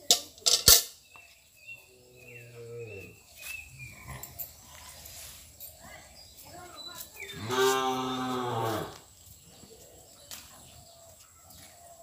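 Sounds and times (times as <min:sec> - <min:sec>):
cow mooing: 0:07.4 - 0:09.0.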